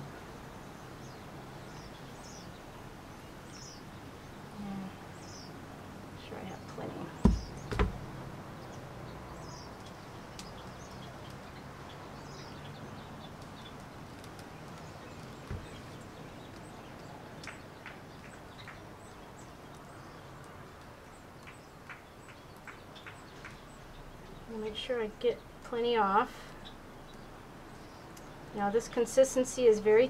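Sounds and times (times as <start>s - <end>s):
small birds chirping: 0.0s - 30.0s
light taps: 7.2s - 8.0s
soft thump: 7.2s - 8.1s, 15.5s - 15.8s.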